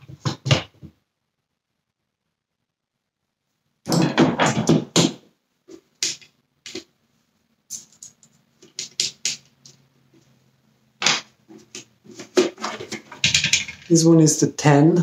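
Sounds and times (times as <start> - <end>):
small tools clicking and clattering: 7.7 - 9.8, 11.6 - 14.0.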